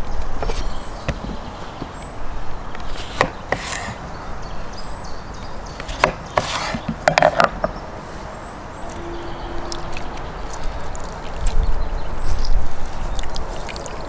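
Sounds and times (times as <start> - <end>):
knife rasping through fruit: 2.9 - 4.0, 5.8 - 6.9.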